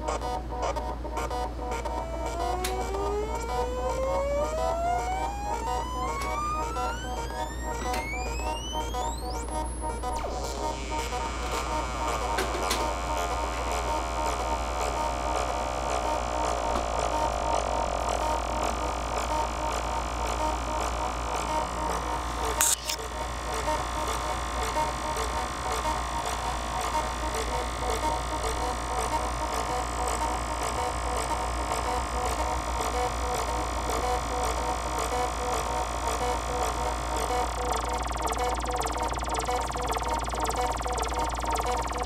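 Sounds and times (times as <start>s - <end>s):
repeating sequenced synth notes: 0.0s - 13.2s, 36.4s - 42.0s
steady ticking pulse: 0.1s - 19.4s, 32.4s - 42.0s
buzzy synth drone: 1.4s - 15.8s, 37.3s - 42.0s
sharp click: 22.6s - 23.0s
low hum: 37.5s - 42.0s.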